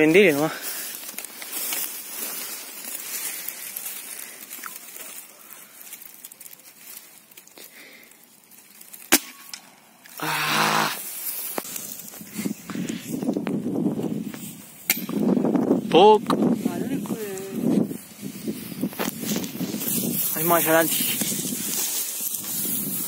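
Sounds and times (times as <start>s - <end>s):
short loud cry: 10.2s - 11.0s.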